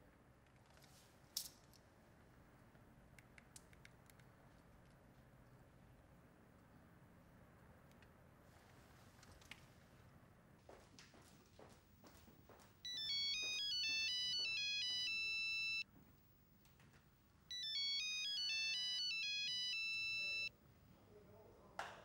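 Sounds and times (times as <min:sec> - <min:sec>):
phone ringtone melody: 0:12.8 - 0:15.8, 0:17.5 - 0:20.5.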